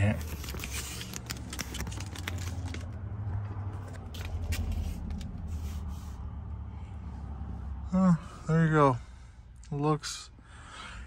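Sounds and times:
vinyl film crackling: 0.0s - 3.0s.

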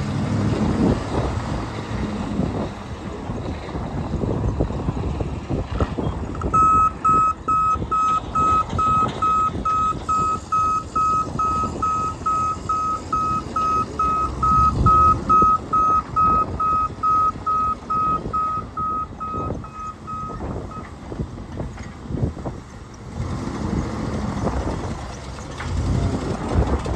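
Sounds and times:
engine rumbling: 0.0s - 26.9s
truck backup alarm beeping: 6.4s - 20.9s.

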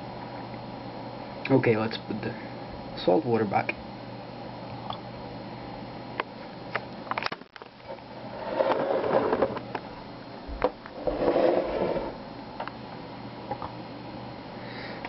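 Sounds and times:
scraping and rustling: 8.3s - 9.6s, 10.9s - 12.2s.

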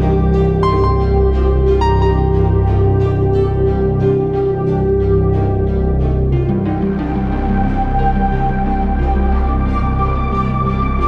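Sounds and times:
slow ambient new-age music: 0.0s - 11.0s.

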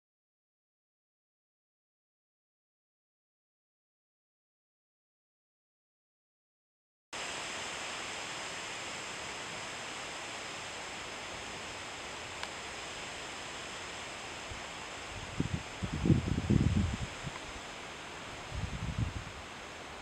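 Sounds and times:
wind through trees and leaves: 7.2s - 20.0s
faint click: 12.4s - 12.6s.

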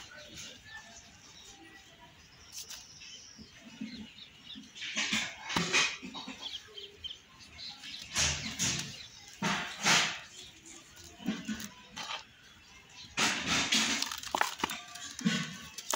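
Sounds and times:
dry soil crumbling and trickling: 7.6s - 15.9s.

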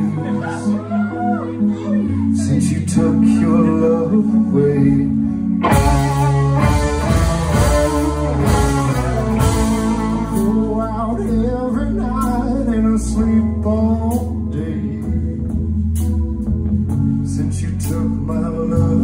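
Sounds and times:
electric guitars: 0.0s - 19.0s
man singing: 2.3s - 6.4s, 9.8s - 15.6s, 17.2s - 19.0s.

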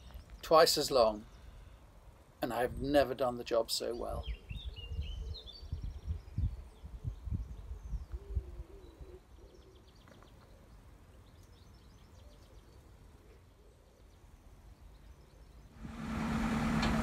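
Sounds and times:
small birds chirping: 3.6s - 15.8s
low rumbling buffets: 15.8s - 17.0s.

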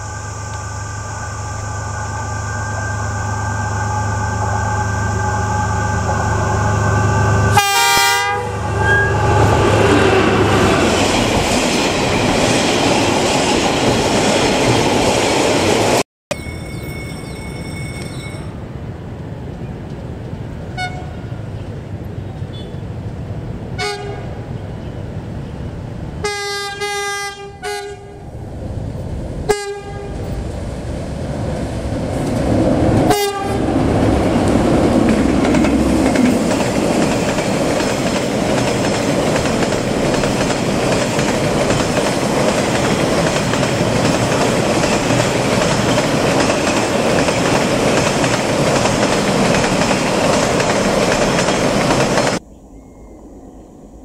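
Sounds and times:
diesel locomotive horn: 0.0s - 11.0s, 20.7s - 21.3s, 23.8s - 24.5s, 26.2s - 28.3s, 29.5s - 30.3s, 33.0s - 33.8s
train wheels clattering on rails: 32.0s - 52.4s.

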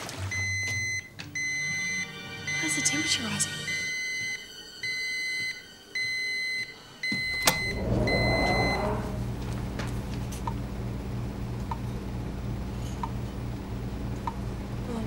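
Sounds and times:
electronic alarm beeping: 0.3s - 9.2s
low machine hum: 7.2s - 15.0s
rush of noise: 7.5s - 9.8s.

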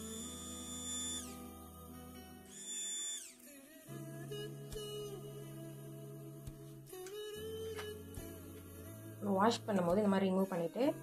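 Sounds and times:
held synth tones: 0.0s - 1.5s
high whistle-like sound sliding down: 2.5s - 3.4s.

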